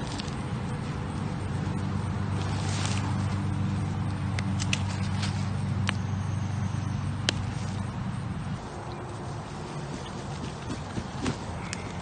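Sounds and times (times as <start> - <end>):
low engine hum: 0.0 - 12.0
hands digging through potting soil: 2.2 - 3.7.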